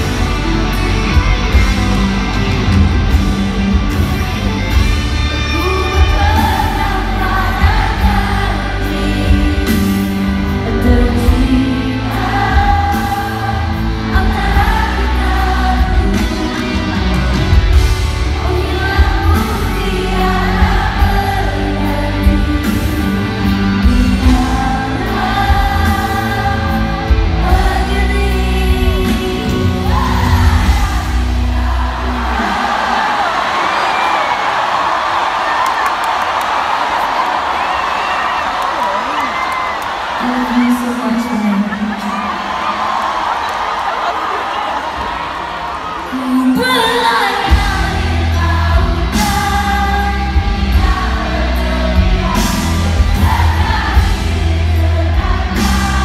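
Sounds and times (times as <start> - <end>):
live rock band playing: 0.0 - 32.5, 47.5 - 56.0
woman singing: 5.3 - 17.2, 18.1 - 32.5, 46.1 - 56.0.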